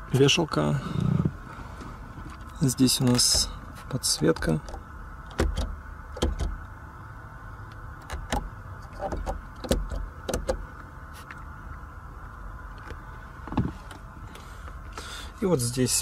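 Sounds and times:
steady low hum: 0:00.0 - 0:16.0
switches clicking and tapping: 0:04.1 - 0:06.7, 0:07.7 - 0:10.6.

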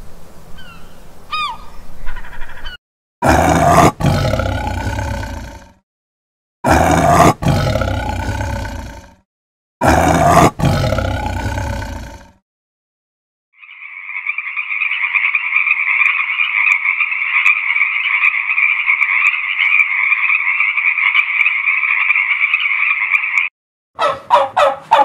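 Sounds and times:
frogs calling in chorus: 0:13.6 - 0:23.5
turkey gobbling: 0:24.0 - 0:25.0.

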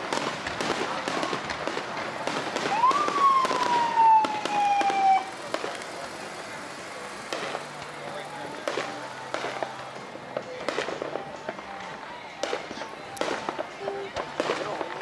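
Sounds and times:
fireworks popping and crackling: 0:00.0 - 0:15.0
firework whistle: 0:02.5 - 0:05.8.

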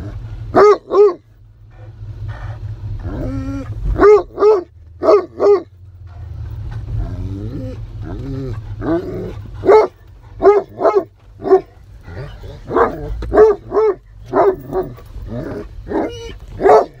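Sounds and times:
low car rumble: 0:00.0 - 0:17.0
dog barking: 0:00.5 - 0:01.2, 0:03.9 - 0:05.7, 0:08.8 - 0:17.0.

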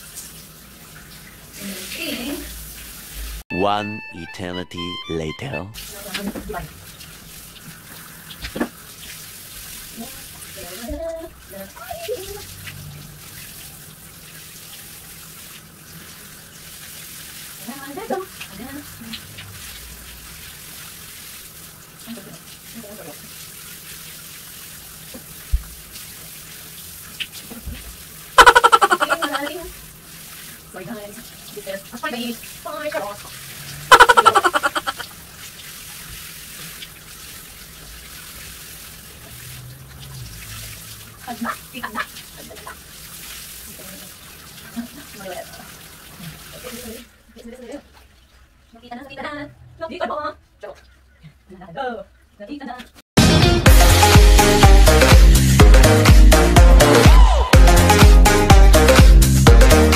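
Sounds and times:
shower water running: 0:00.0 - 0:03.4, 0:05.8 - 0:59.9
person speaking: 0:03.5 - 0:05.8, 0:28.4 - 0:29.7, 0:33.9 - 0:35.0.

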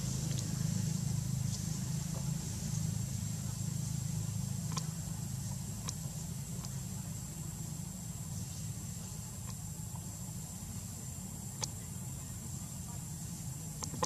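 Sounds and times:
low engine-like hum: 0:00.0 - 0:14.0
faint sharp clicks: 0:11.6 - 0:11.8.

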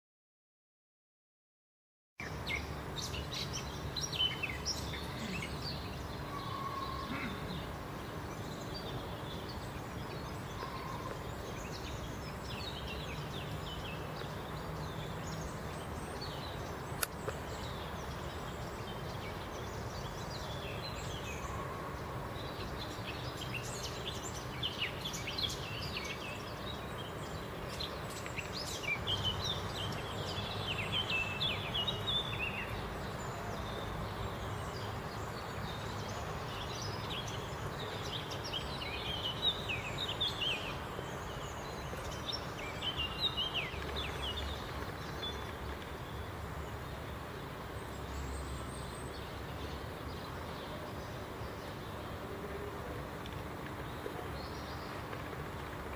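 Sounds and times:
outdoor background hiss: 0:02.2 - 0:55.9
songbirds chirping: 0:02.2 - 0:55.9
sharp click: 0:17.0 - 0:17.4.

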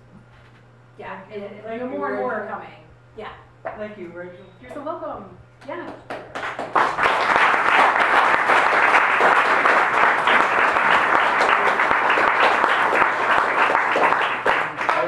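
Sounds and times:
audience applauding: 0:06.0 - 0:15.0.

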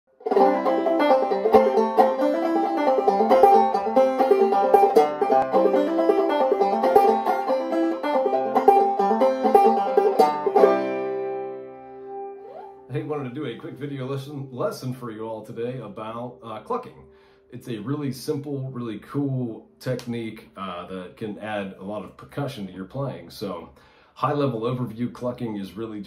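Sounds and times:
banjo played clawhammer style: 0:00.1 - 0:16.2.

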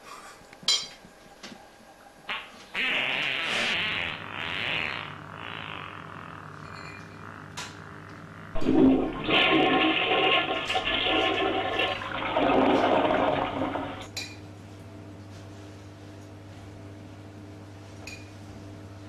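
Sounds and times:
toilet flushing: 0:08.6 - 0:14.1.

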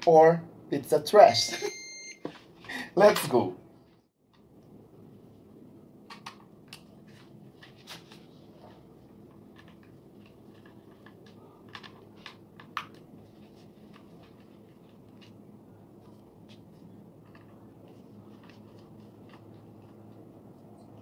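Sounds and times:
faint low hum: 0:00.4 - 0:21.0.

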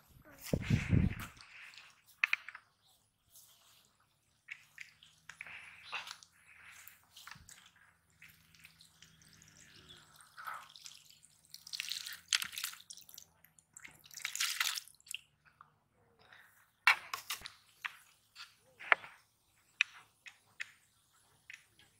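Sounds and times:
water pouring from pipe into basket: 0:06.6 - 0:15.2.

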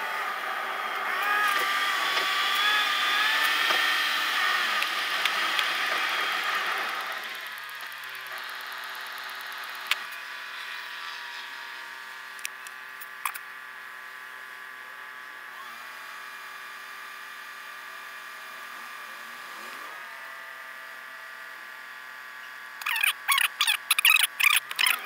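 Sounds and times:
car engine idling high-pitched buzz: 0:00.0 - 0:25.0.

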